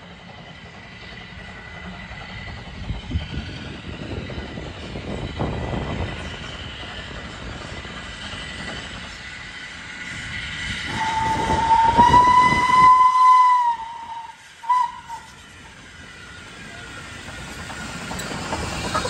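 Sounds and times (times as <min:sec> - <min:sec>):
moving train noise: 0:00.0 - 0:19.0
steam locomotive whistle: 0:10.9 - 0:15.4.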